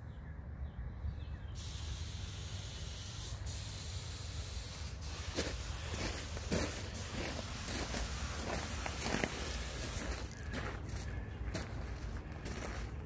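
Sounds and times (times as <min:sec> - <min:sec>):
bird chirping: 0:00.0 - 0:01.8
steady hiss: 0:01.6 - 0:10.4.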